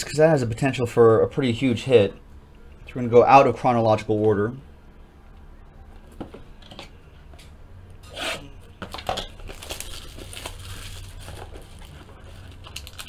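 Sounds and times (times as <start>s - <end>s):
plastic wrap crinkling: 8.9s - 13.0s
plastic wrap tearing: 8.9s - 13.0s.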